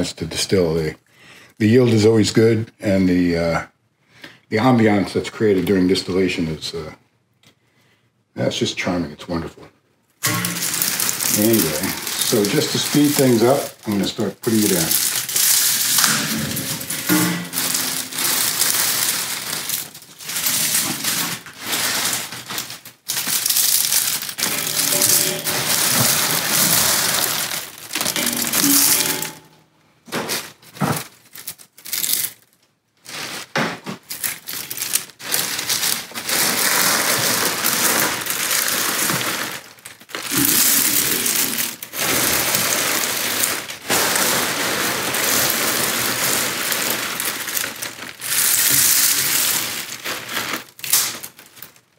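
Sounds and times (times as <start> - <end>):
dried leaves crackling: 10.2 - 29.5, 31.0 - 51.9
plastic bag crinkling: 10.2 - 29.6, 30.3 - 51.9.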